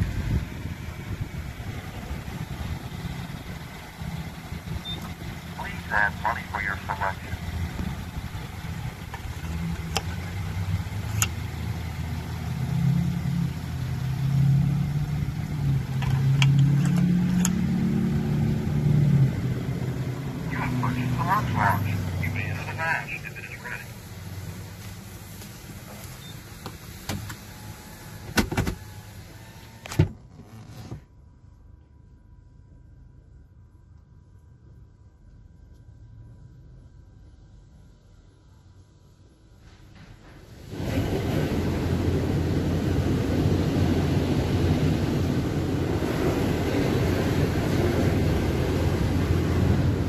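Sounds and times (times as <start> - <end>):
steady low hum: 0.0 - 25.4, 31.1 - 50.0
car engine idling: 0.0 - 29.8
car power window closing: 26.7 - 31.0.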